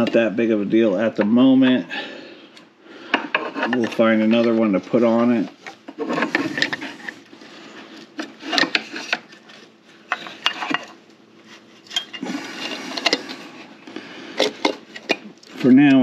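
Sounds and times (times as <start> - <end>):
metal scraping against metal: 3.1 - 13.7.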